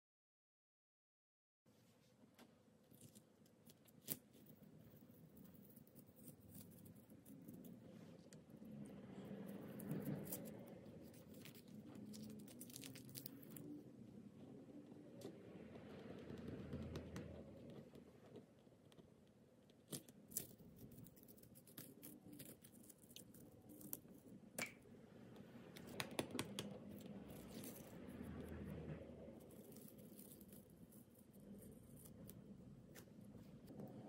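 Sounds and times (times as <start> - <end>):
low room noise: 1.7 - 34.0
painting materials clicking and rustling: 25.7 - 34.0.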